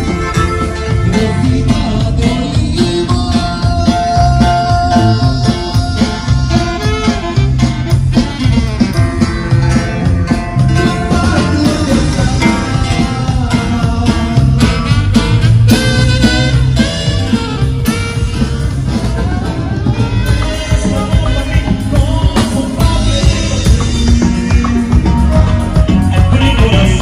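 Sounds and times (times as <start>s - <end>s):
sustained melody instruments: 0.0s - 6.5s
drums keeping a beat: 0.0s - 27.0s
electric bass line: 0.0s - 27.0s.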